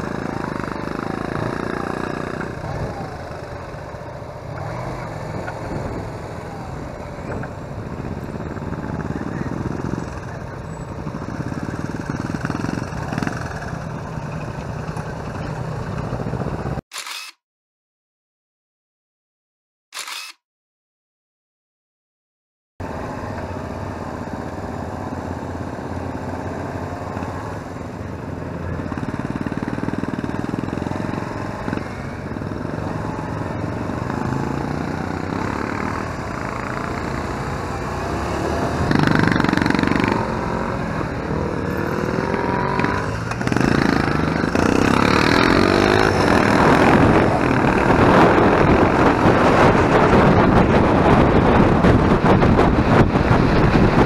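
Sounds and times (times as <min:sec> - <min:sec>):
motorcycle engine accelerating: 0:00.0 - 0:16.8, 0:22.8 - 0:54.0
wind noise: 0:04.6 - 0:13.5, 0:35.2 - 0:54.0.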